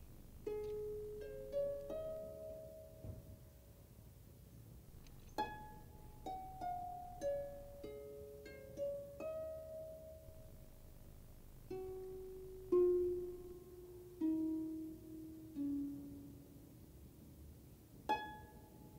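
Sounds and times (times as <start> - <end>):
plucked string melody: 0.0 - 3.0, 5.0 - 10.8, 11.7 - 16.6, 18.0 - 18.9.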